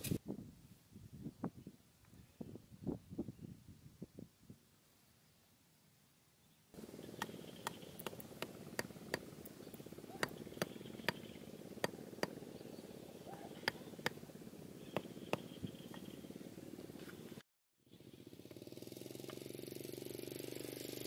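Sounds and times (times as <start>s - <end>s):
hand tool tapping wooden stakes: 7.2s - 9.3s.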